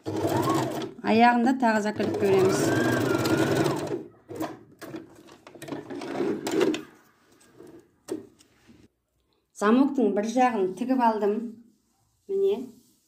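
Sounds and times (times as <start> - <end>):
sewing machine stitching: 0.0 - 1.0, 1.9 - 7.0.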